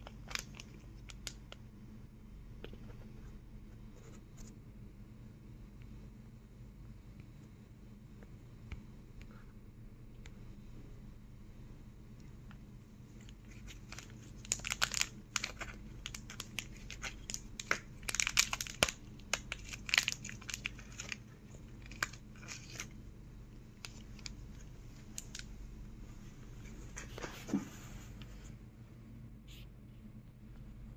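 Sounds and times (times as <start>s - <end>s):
foil sachets crinkling: 0.0s - 1.4s, 13.2s - 23.0s, 23.8s - 25.5s
faint steady hum: 0.0s - 30.9s.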